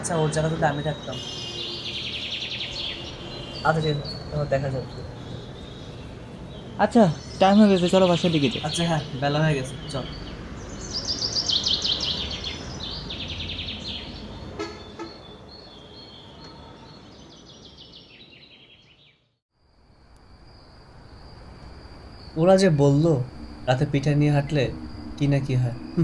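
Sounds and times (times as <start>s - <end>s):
insect trill: 0.0s - 17.8s, 19.5s - 26.0s
birds chirping in trills: 0.0s - 19.4s, 20.6s - 26.0s
low outdoor rumble: 20.1s - 26.0s.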